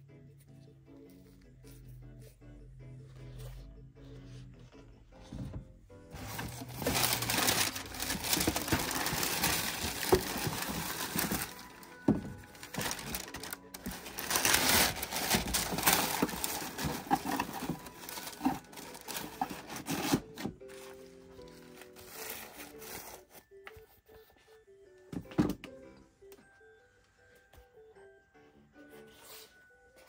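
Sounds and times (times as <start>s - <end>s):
tissue paper crinkling: 6.1s - 23.2s.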